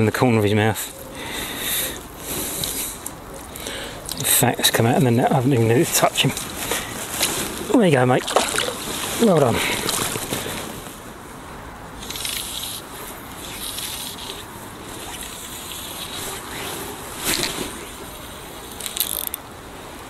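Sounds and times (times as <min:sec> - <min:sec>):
fly line clicks: 0:18.7 - 0:19.4.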